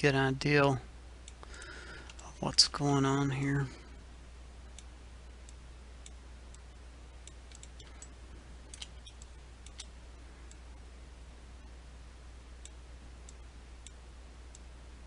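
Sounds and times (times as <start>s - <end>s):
low electrical hum: 0.0s - 15.0s
computer mouse clicks: 7.2s - 8.1s, 8.7s - 9.9s.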